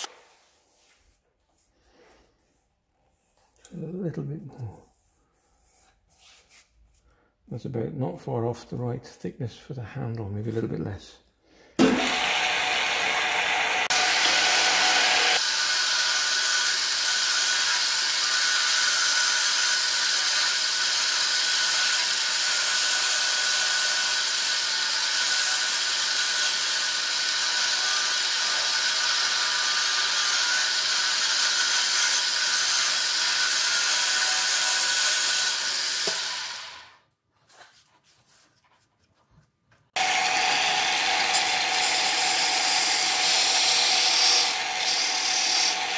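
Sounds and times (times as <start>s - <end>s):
wood lathe humming: 11.8s - 37.0s, 40.0s - 45.9s
chisel scraping wood on lathe: 40.8s - 45.9s.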